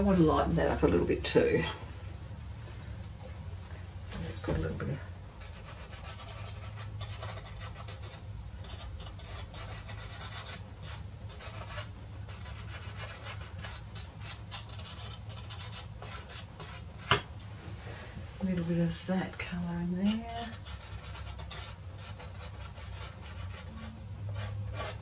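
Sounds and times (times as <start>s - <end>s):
pastel stick rubbing on paper: 5.4s - 17.1s, 20.1s - 25.0s.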